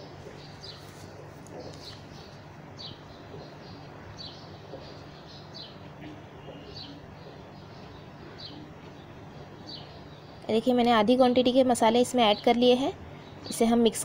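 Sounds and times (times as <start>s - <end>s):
bird chirping: 0.0s - 10.6s
low steady hum: 0.0s - 14.0s.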